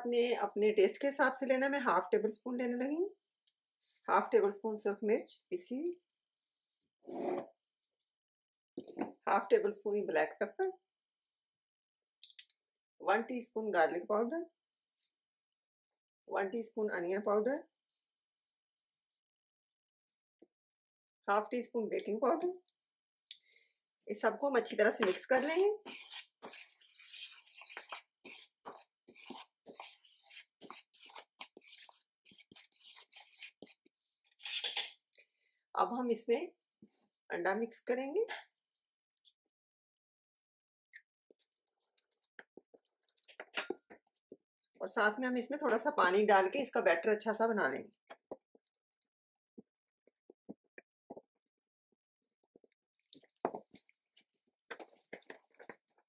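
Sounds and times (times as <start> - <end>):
spoon scraping bowl stirring flour: 24.8 - 34.9.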